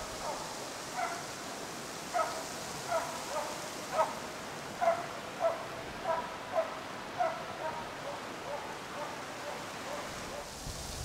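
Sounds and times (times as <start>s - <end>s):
dog barking: 0.2s - 0.4s, 1.0s - 1.2s, 2.2s - 4.2s, 4.8s - 10.5s.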